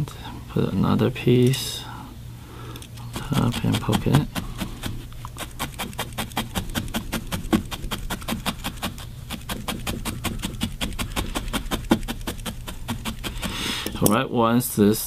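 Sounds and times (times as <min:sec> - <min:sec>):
felting needle stabbing wool: 0:03.1 - 0:13.7.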